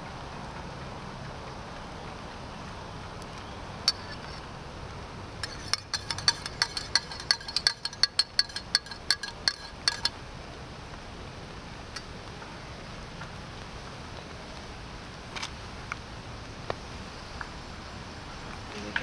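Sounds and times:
spoon clinking in mug: 5.4 - 10.1.

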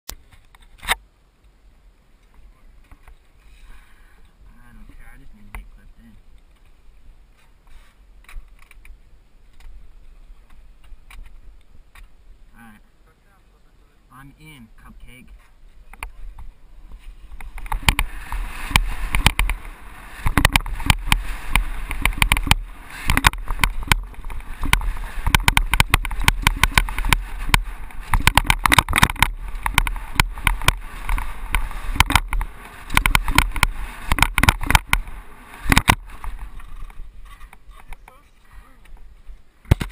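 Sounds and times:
wind rushing over microphone: 15.9 - 37.6
deep rumble: 16.2 - 37.7
bike rattles and knocks: 17.3 - 38.2, 38.9 - 39.9.

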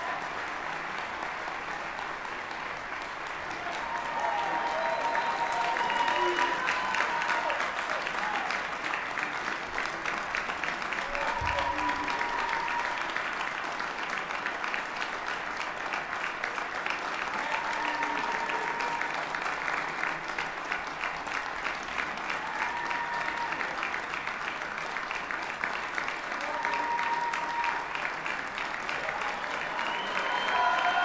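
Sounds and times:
audience applauding: 0.0 - 31.0
drawn-out cheers: 3.6 - 8.7, 11.0 - 13.2, 17.3 - 19.2, 22.3 - 23.9, 26.3 - 28.1, 28.9 - 31.0.

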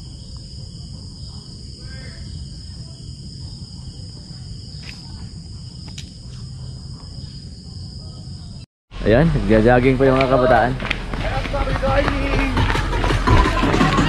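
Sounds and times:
crickets trilling: 0.0 - 8.7.

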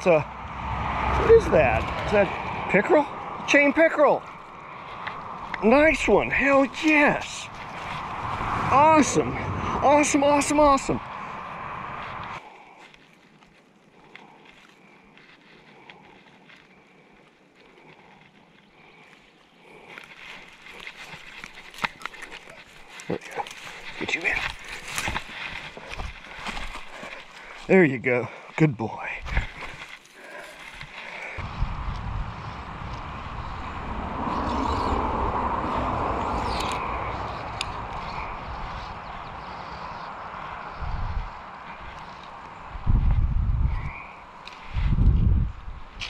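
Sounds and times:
car passing on road: 0.0 - 12.4, 31.4 - 43.3
wind buffeting microphone: 0.0 - 12.4, 31.4 - 46.0
faint outdoor background: 0.0 - 46.0
rustling of dry leaves: 0.0 - 46.0.

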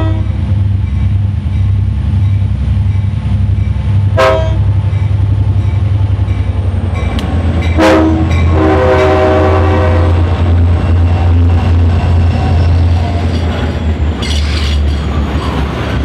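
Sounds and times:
train horn: 0.0 - 0.4, 4.2 - 4.7, 7.7 - 10.7
diesel locomotive engine rumble: 0.0 - 16.0.

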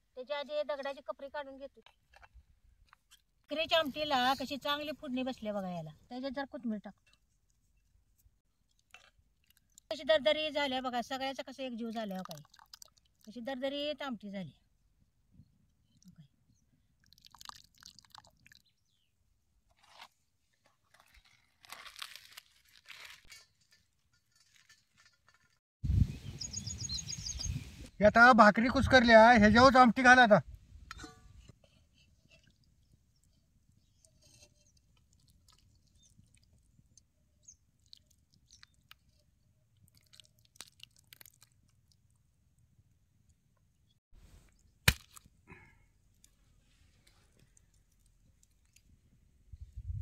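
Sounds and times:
flatbread tearing and crunching: 19.7 - 23.7, 39.8 - 41.8.

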